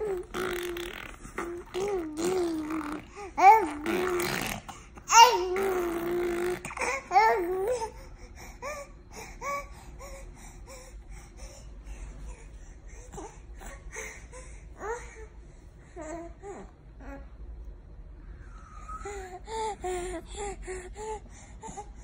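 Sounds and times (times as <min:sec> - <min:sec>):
baby squealing and babbling: 0:00.0 - 0:07.7.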